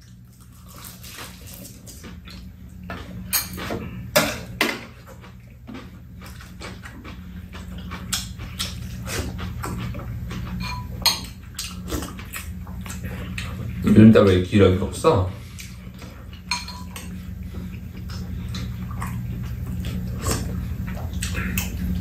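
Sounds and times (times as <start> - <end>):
low steady hum: 0.0 - 22.0
spoons clinking against bowls: 3.3 - 4.4, 10.6 - 11.4, 16.5 - 17.1.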